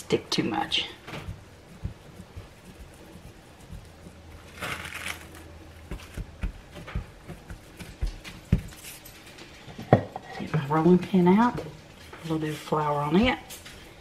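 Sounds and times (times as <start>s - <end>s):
palms patting dough: 0.0s - 14.0s
plastic wrap crinkling: 4.4s - 6.2s.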